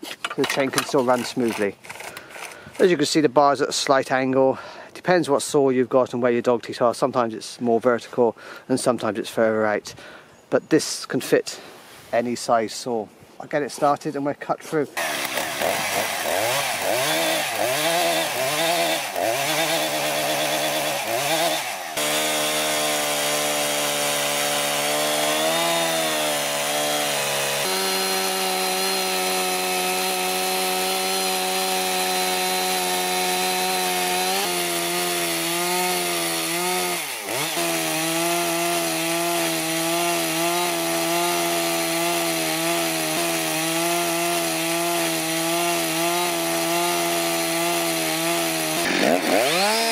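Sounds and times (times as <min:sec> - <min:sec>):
chainsaw cutting a log: 0:00.7 - 0:02.9, 0:15.0 - 0:49.9.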